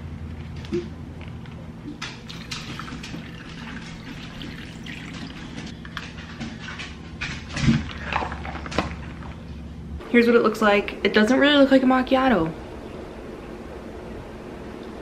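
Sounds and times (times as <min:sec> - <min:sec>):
coffee pouring over ice: 0:02.2 - 0:05.7.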